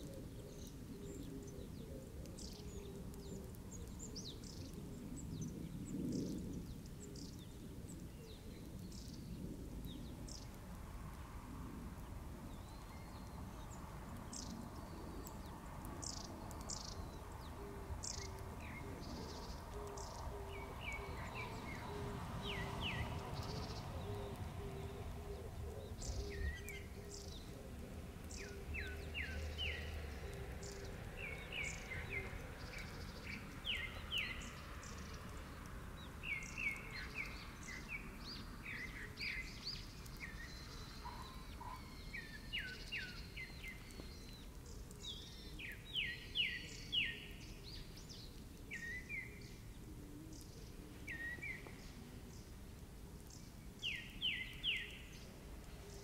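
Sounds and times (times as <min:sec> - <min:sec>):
faint low rumble: 0:00.0 - 0:41.3
birds chirping: 0:00.0 - 0:56.0.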